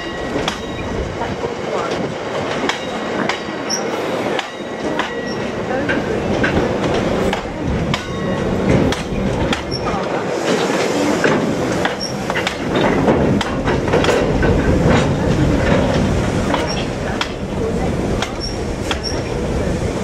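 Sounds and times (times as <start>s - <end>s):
wheels clanking on track: 0.0s - 20.0s
freight wagons rumbling past: 4.8s - 20.0s.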